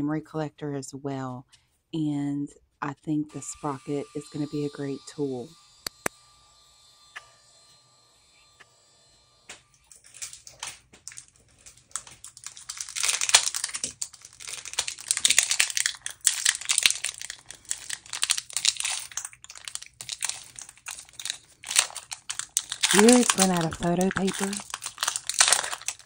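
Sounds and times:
foil wrapper crinkling: 0:09.8 - 0:26.0.

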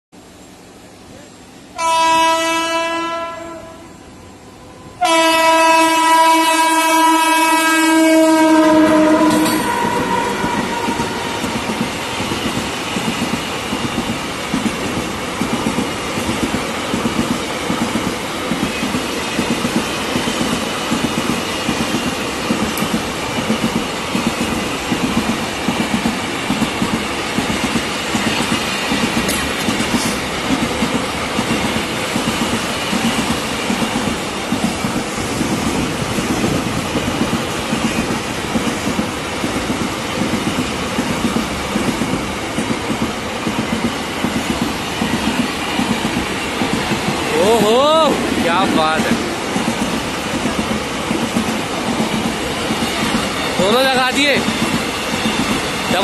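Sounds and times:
train rumbling past: 0:00.2 - 0:56.0
locomotive horn blasts: 0:01.8 - 0:04.0, 0:05.0 - 0:11.4
wheels clacking on rails: 0:08.0 - 0:56.0.

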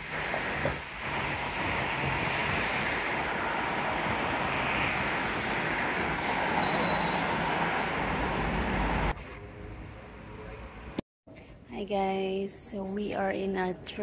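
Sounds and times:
moving vehicle roar: 0:00.0 - 0:11.0
brief high squeal: 0:06.5 - 0:07.6.

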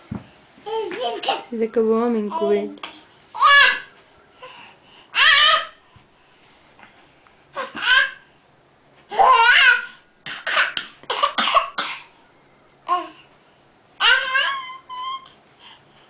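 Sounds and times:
baby laughing: 0:09.1 - 0:11.4.

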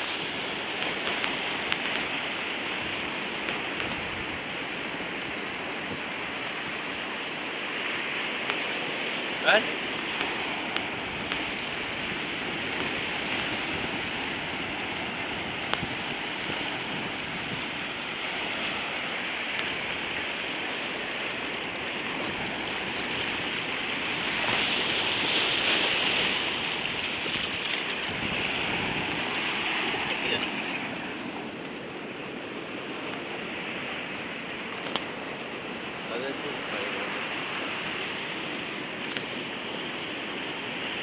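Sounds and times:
small waves washing ashore: 0:00.0 - 0:41.0.

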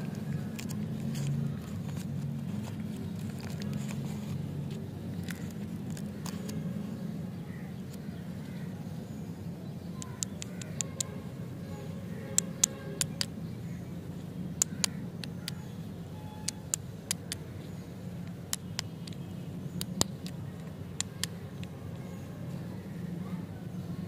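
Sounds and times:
lollipops clicking: 0:00.0 - 0:02.1, 0:10.0 - 0:11.1, 0:12.3 - 0:13.3, 0:14.6 - 0:15.6, 0:16.5 - 0:17.5, 0:18.2 - 0:21.8.

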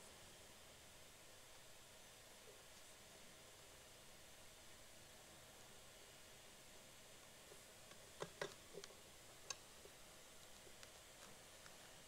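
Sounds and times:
faint clicks and taps: 0:07.2 - 0:12.0.

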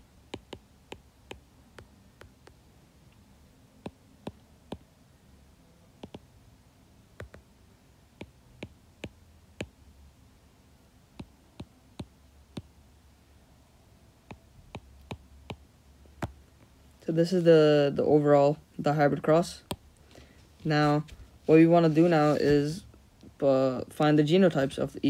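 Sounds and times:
faint low hum: 0:00.0 - 0:25.0
stylus tapping on glass screen: 0:00.3 - 0:02.6, 0:03.8 - 0:04.9, 0:06.0 - 0:06.2, 0:07.2 - 0:07.4, 0:08.2 - 0:09.8, 0:14.3 - 0:15.6.

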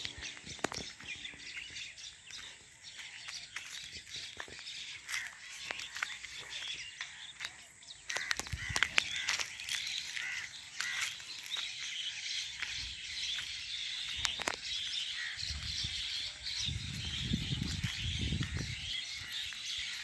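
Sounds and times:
flock of small birds chirping: 0:00.0 - 0:20.0.

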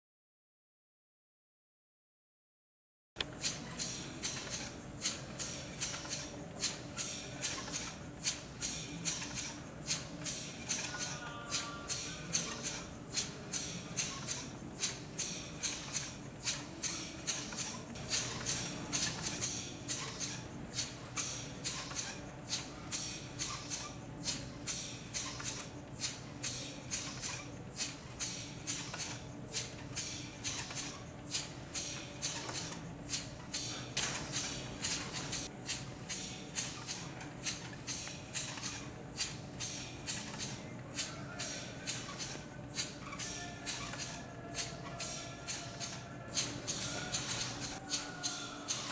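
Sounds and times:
piston engine puffing sharp hisses: 0:11.7 - 0:46.0.

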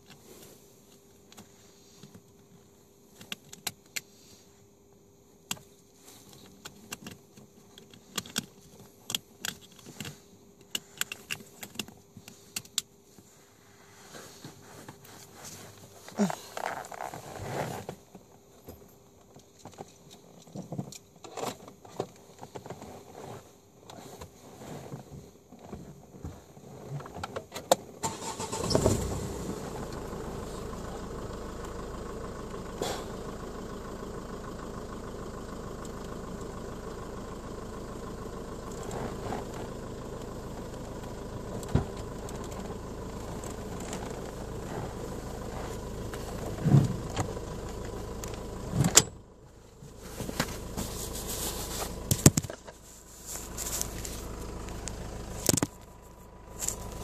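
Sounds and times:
clicks inside car: 0:05.4 - 0:13.3
rustling of handling: 0:05.6 - 0:27.4, 0:41.5 - 0:48.8, 0:49.6 - 0:57.0
car engine starting and idling: 0:27.8 - 0:57.0.

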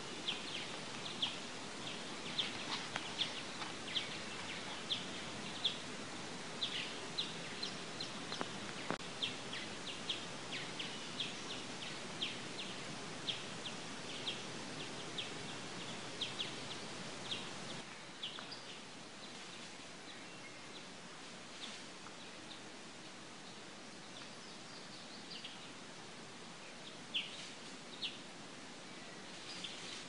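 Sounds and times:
birds chirping: 0:00.0 - 0:21.0
steady outdoor hiss: 0:00.0 - 0:30.0.

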